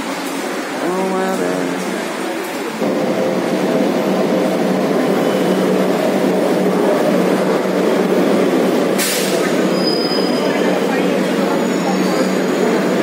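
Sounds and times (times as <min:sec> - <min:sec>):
metro train rumbling into station: 0:00.0 - 0:13.0
short sharp hiss: 0:09.0 - 0:09.5.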